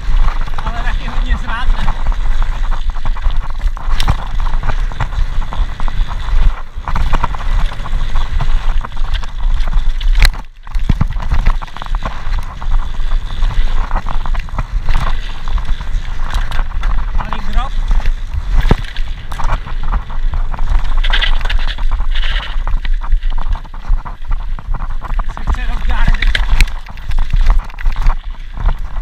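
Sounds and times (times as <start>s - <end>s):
bike rattling and clicking: 0.0s - 29.0s
bike tyres rumbling on dirt: 0.0s - 29.0s
wind buffeting microphone: 0.0s - 29.0s.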